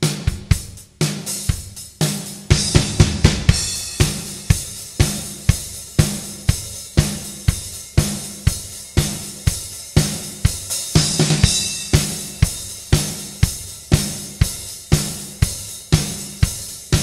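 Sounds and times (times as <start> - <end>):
drum kit playing: 0.0 - 17.0
cymbals washing: 3.5 - 17.0.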